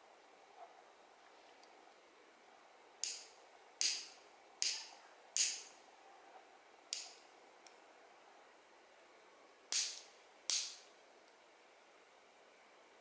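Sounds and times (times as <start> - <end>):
nail clipper snipping: 9.7 - 10.8.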